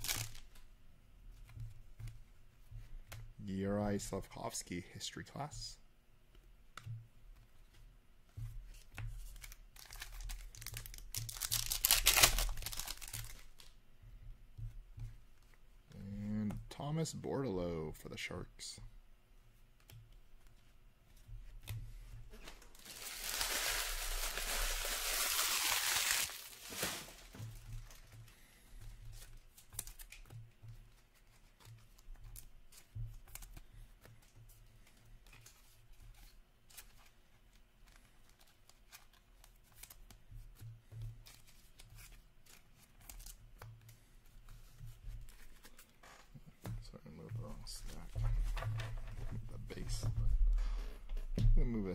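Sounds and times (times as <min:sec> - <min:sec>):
wrapper tearing and crinkling: 0:00.0 - 0:00.4, 0:09.4 - 0:13.7, 0:22.4 - 0:28.0.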